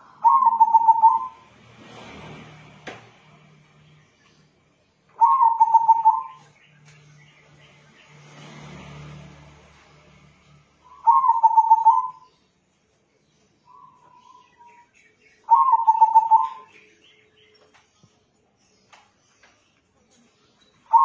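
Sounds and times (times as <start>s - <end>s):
dove cooing: 0.0s - 1.4s, 5.2s - 6.4s, 10.9s - 12.3s, 15.5s - 16.7s.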